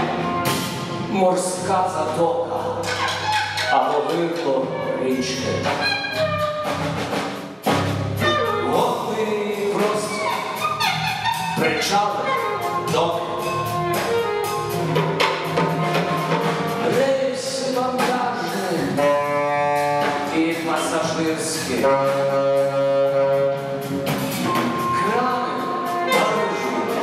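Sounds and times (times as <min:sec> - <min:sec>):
alto saxophone playing: 0:00.0 - 0:00.9, 0:04.6 - 0:09.1, 0:09.8 - 0:16.9, 0:18.8 - 0:27.0
drums: 0:00.0 - 0:27.0
man speaking through microphone: 0:01.1 - 0:05.9, 0:08.5 - 0:10.6, 0:11.6 - 0:13.7, 0:20.3 - 0:23.4, 0:24.9 - 0:27.0.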